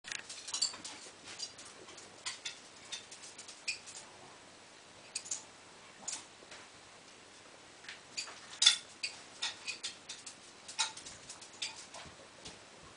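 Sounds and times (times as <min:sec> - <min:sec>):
dog claws clicking on tile floor: 0:00.1 - 0:04.0, 0:08.2 - 0:12.6.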